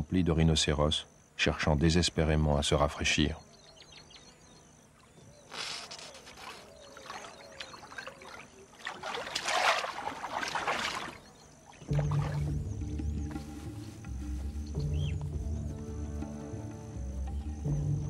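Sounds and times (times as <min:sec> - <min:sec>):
water sloshing and splashing: 0:05.0 - 0:13.0
music: 0:11.9 - 0:18.0.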